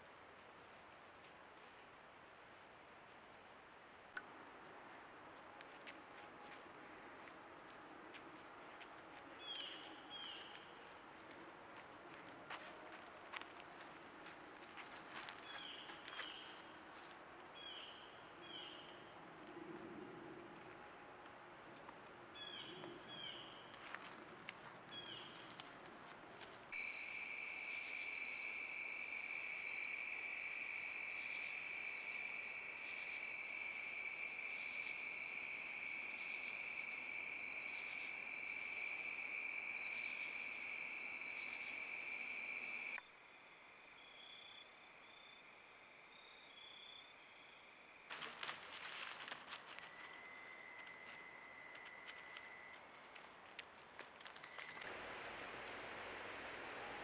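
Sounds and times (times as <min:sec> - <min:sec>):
faint insect hum: 0:00.0 - 0:57.0
crickets trilling: 0:26.7 - 0:54.9.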